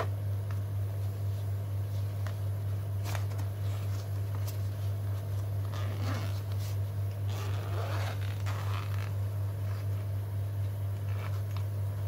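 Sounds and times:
nylon fabric rubbing: 3.0 - 10.2, 11.0 - 11.6
zipper pulled open: 5.6 - 9.9, 11.1 - 11.6.

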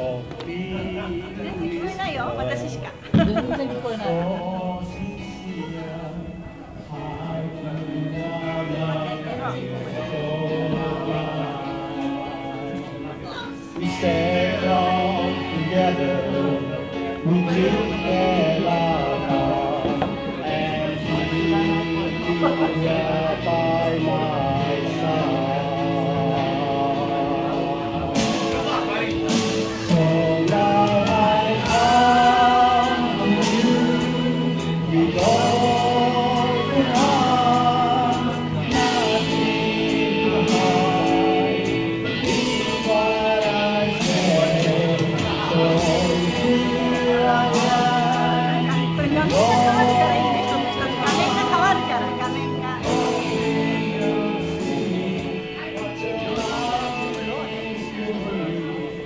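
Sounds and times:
slow ballad backing track: 0.0 - 59.0
woman singing karaoke: 0.8 - 4.6, 43.9 - 58.7.

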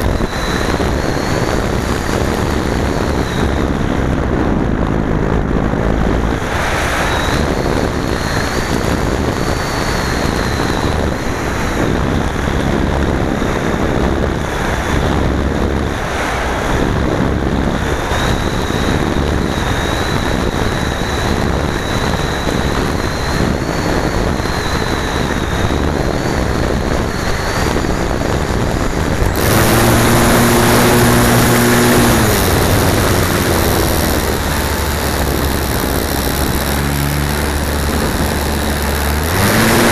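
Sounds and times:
steady low hum: 0.0 - 39.9
wind noise rushing: 0.0 - 39.9.

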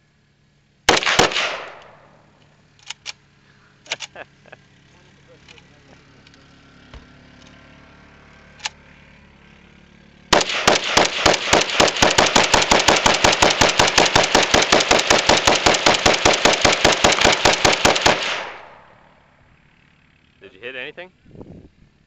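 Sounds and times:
rifle firing rapid shots: 0.9 - 2.1, 10.3 - 19.0.

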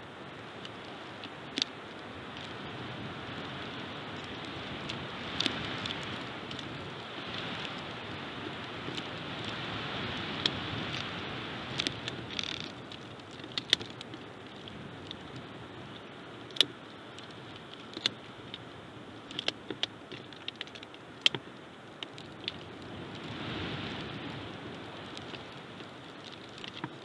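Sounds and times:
wind on microphone: 0.0 - 13.0, 22.6 - 26.2.

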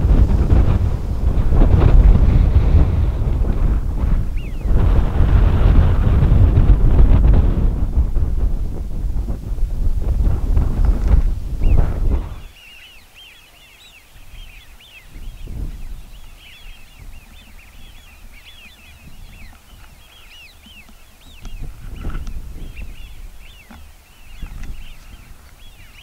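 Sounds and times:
wind buffeting microphone: 0.0 - 26.0
flock of ducks whistling: 4.2 - 4.8, 11.6 - 26.0.

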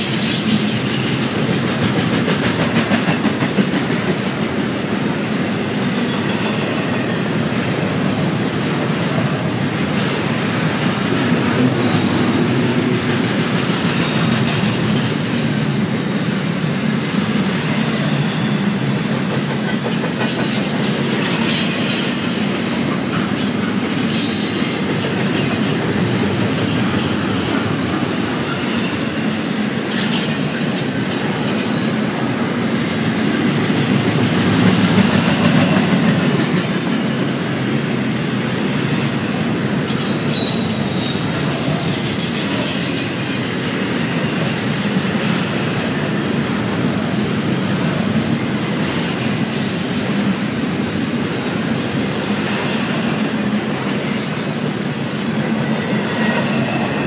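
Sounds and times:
train wheels rumbling on rails: 0.0 - 57.0
high-pitched wheel squeals: 14.0 - 25.8, 53.8 - 57.0.

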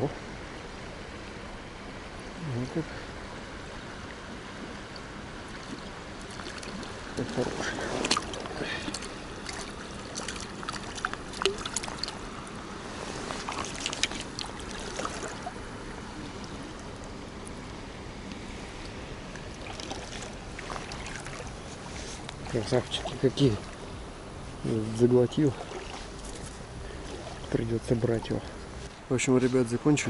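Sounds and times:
river flowing over riffles: 0.0 - 30.0
hands handling fish: 5.8 - 15.4.

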